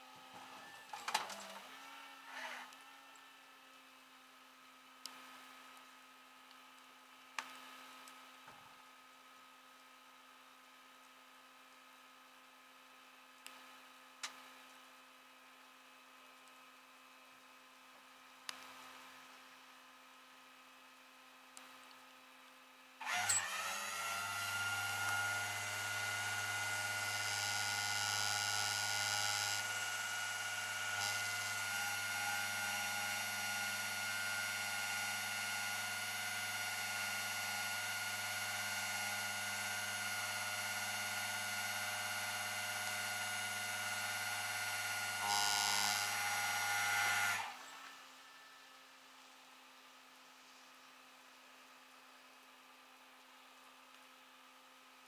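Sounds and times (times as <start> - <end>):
hydraulic winch whine: 0.3 - 2.8, 23.0 - 48.0.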